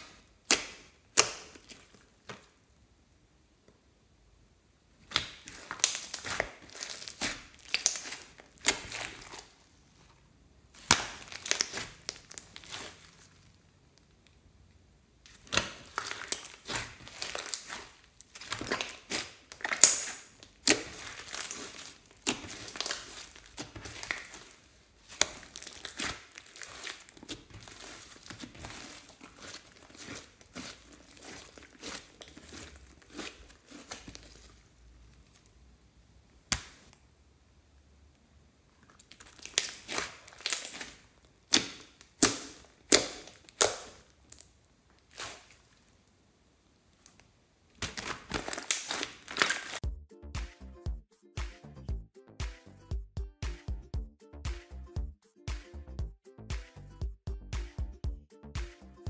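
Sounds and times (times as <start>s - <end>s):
slime squishing and crackling: 0.0s - 2.6s, 5.0s - 10.1s, 10.7s - 14.4s, 15.3s - 35.6s, 38.8s - 46.2s, 46.9s - 49.8s.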